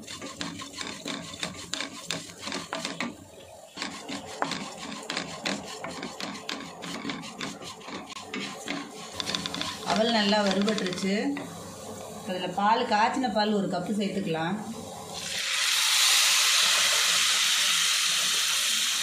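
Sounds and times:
wooden spatula scraping pan: 0:00.0 - 0:11.5.

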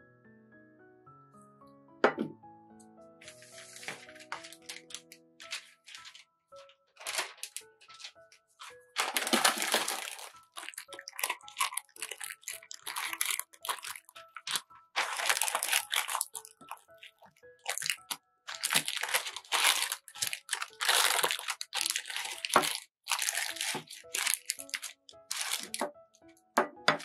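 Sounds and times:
baking paper crinkling: 0:03.2 - 0:25.9.

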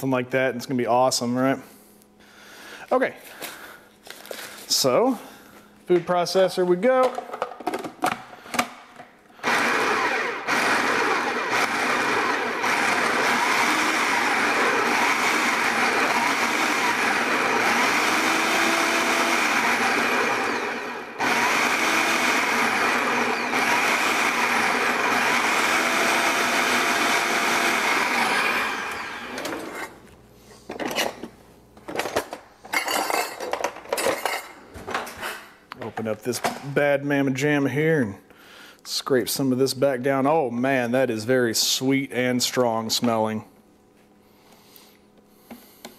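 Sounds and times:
food processor whirring: 0:09.4 - 0:30.0.

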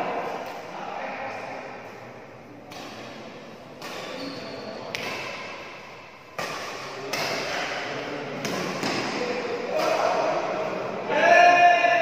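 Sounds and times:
rackets hitting shuttlecock: 0:02.7 - 0:10.4.

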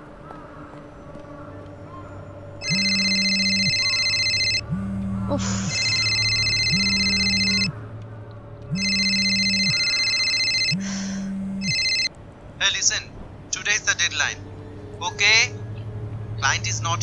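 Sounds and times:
electronic phone ringtone: 0:02.6 - 0:07.7, 0:08.7 - 0:12.1
phone vibration buzzing: 0:02.6 - 0:07.7, 0:08.7 - 0:12.1.

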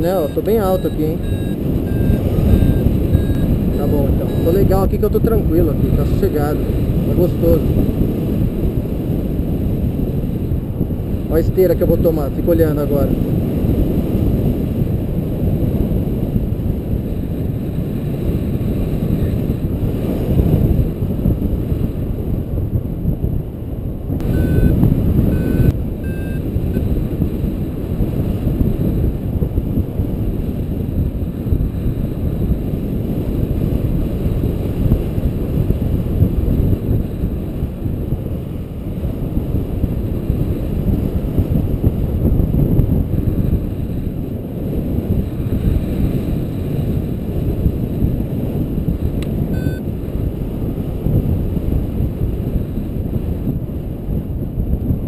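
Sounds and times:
short high beeps: 0:00.0 - 0:04.7, 0:24.2 - 0:26.8, 0:49.5 - 0:49.8
wind on microphone: 0:00.0 - 0:55.0.

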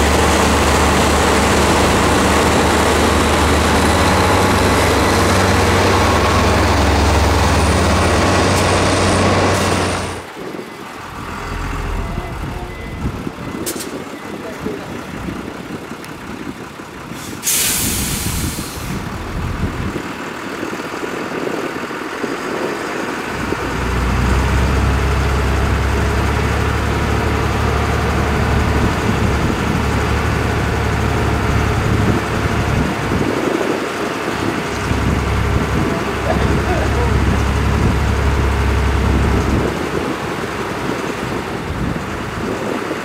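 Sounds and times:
diesel engine droning: 0:00.0 - 0:43.0
air brake hiss: 0:17.2 - 0:19.0.

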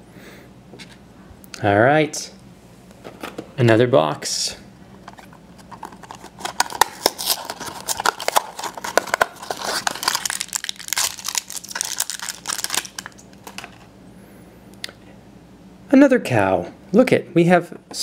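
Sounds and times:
cardboard box opening: 0:05.7 - 0:10.4
foil packet tearing and crinkling: 0:05.7 - 0:13.9.

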